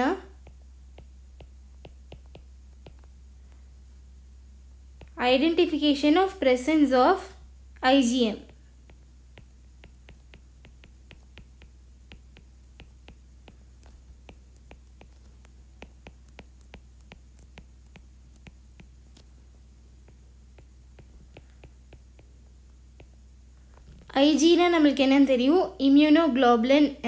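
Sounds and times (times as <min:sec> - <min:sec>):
stylus tapping on screen: 0:00.0 - 0:03.7, 0:04.9 - 0:06.3, 0:08.3 - 0:24.2
low hum: 0:00.0 - 0:25.9.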